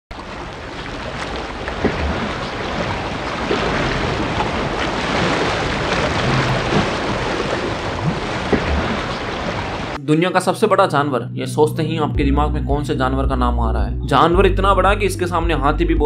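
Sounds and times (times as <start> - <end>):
sea waves: 0.1 - 10.0
wind: 0.1 - 10.0.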